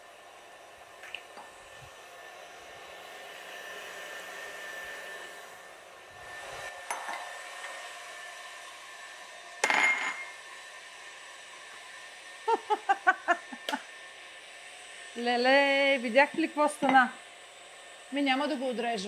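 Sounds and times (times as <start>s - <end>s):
loud clatter with ring: 9.6s - 10.3s.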